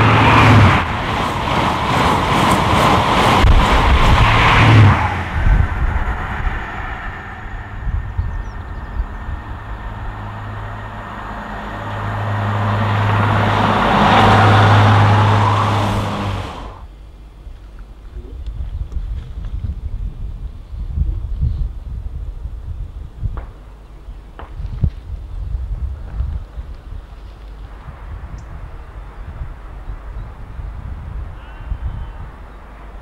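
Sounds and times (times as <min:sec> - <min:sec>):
train coaches rushing past: 0:00.0 - 0:16.8
rushing wheel noise: 0:00.0 - 0:16.9
diesel train engine hum: 0:00.0 - 0:18.3.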